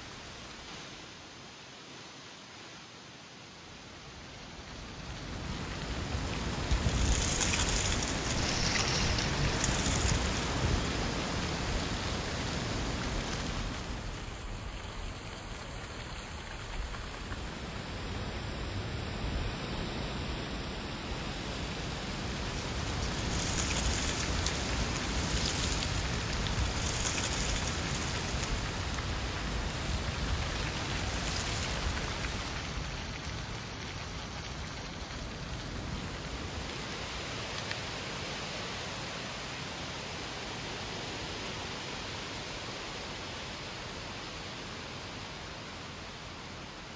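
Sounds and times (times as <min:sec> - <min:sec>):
wind rustling dry leaves: 0:00.0 - 0:46.9
wind rumble on microphone: 0:04.7 - 0:37.1.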